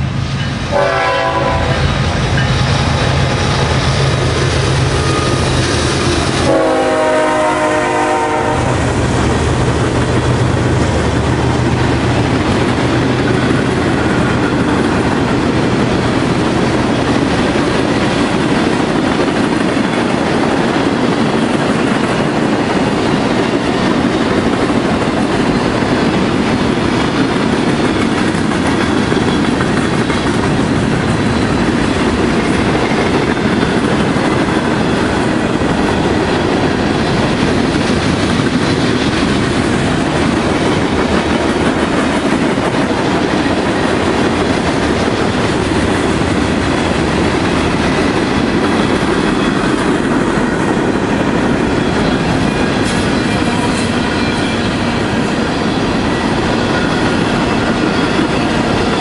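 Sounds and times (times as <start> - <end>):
diesel locomotive engines droning: 0.0 - 59.0
freight cars rolling on rails: 0.0 - 59.0
locomotive horn chord: 0.7 - 2.0, 6.3 - 8.8.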